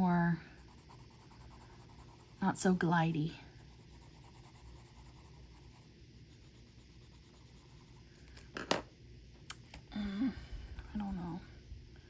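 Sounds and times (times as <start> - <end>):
colored pencil scratching paper: 0.0 - 8.1.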